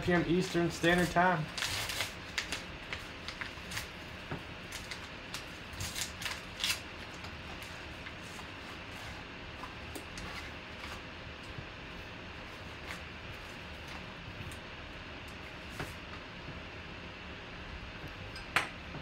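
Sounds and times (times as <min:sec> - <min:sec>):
paper mailer tearing and rustling: 0:00.1 - 0:04.0, 0:04.6 - 0:08.6.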